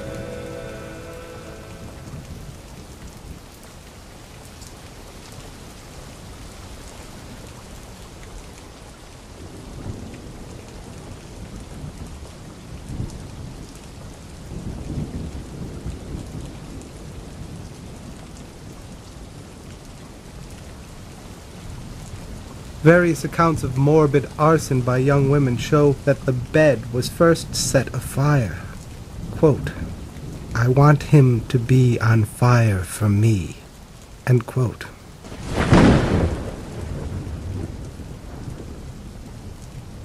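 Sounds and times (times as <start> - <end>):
music chord: 0.0 - 2.8
steady rain: 0.0 - 40.0
rolls of thunder: 35.2 - 40.0.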